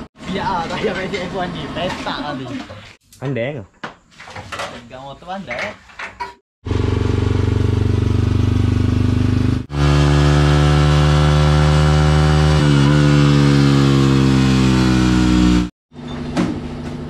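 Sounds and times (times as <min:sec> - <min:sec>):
motorcycle engine revving on dyno: 0:06.6 - 0:15.7.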